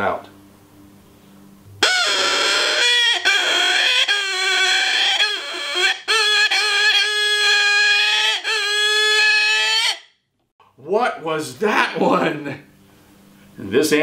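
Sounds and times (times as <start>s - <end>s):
game call hog squeal: 1.8s - 10.1s.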